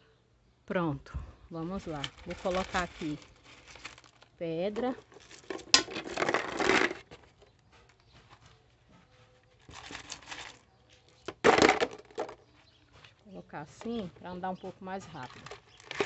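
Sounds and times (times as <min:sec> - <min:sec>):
stones clattering in plastic bottle: 0:01.8 - 0:07.3, 0:09.6 - 0:12.7, 0:15.1 - 0:16.0.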